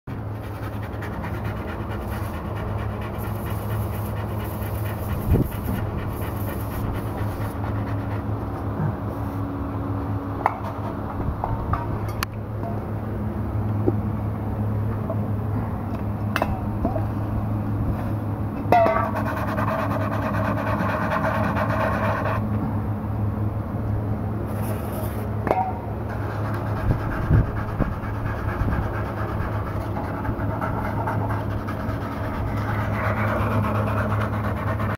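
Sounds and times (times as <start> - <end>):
low machinery hum: 0.1 - 34.9.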